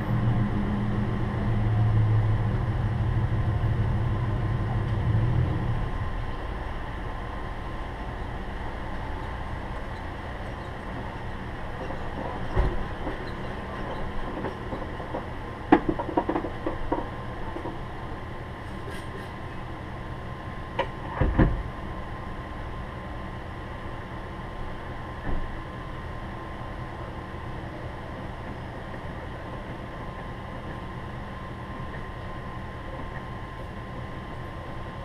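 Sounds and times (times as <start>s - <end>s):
vehicles idling: 0.0s - 21.2s.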